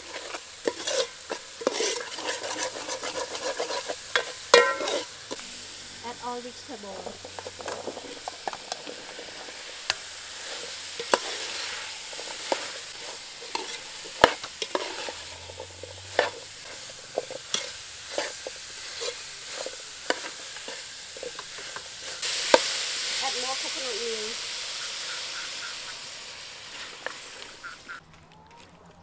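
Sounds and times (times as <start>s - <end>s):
metal spoon scraping a pot: 0.0s - 5.5s, 6.9s - 22.2s
vegetables sizzling in a pot: 0.0s - 28.0s.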